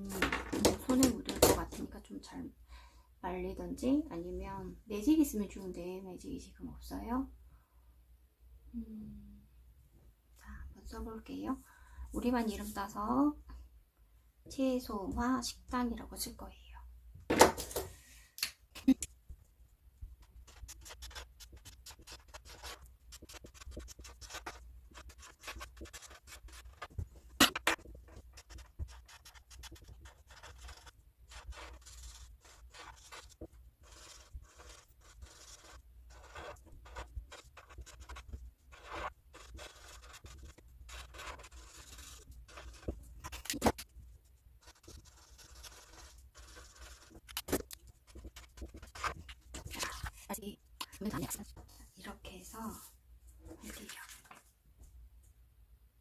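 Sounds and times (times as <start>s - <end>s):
marker scratching on paper: 20.2s - 51.5s.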